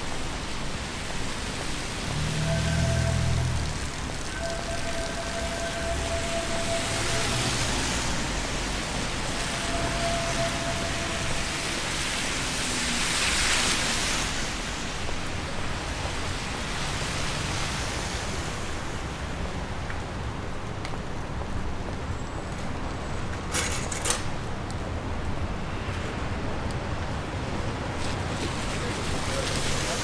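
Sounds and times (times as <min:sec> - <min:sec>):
rain on wet street: 0:00.0 - 0:30.0.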